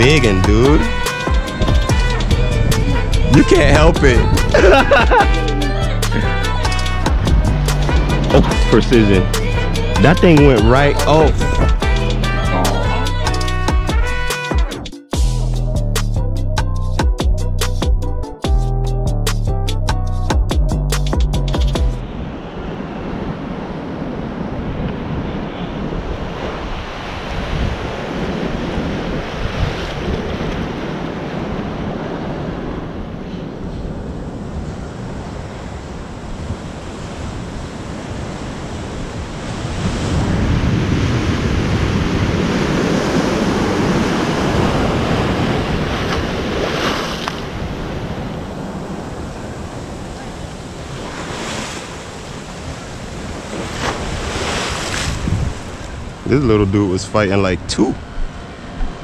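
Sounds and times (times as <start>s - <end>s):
wind buffeting microphone: 0.0s - 8.7s, 22.0s - 56.9s
waves washing: 0.0s - 14.4s, 22.0s - 59.0s.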